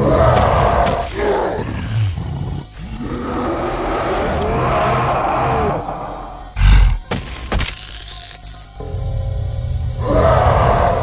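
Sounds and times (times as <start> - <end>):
cartoon creature roaring and growling: 10.0 - 11.0.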